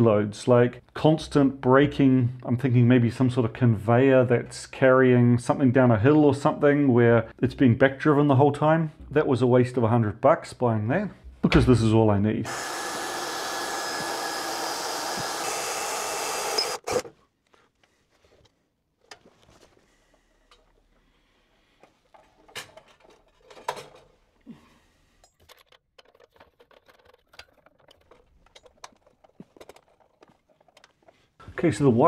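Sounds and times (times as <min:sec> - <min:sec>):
power tool whirring: 0:12.5 - 0:17.1
cables clicking and rustling: 0:25.2 - 0:31.6.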